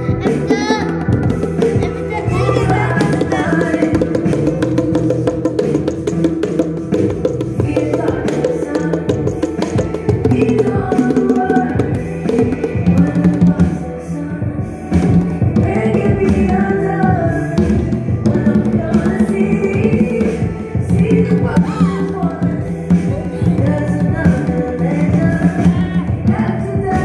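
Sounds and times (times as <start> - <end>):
conga drums played by hand: 0.0 - 13.8, 14.8 - 27.0
recorded song with woman singing: 0.0 - 27.0.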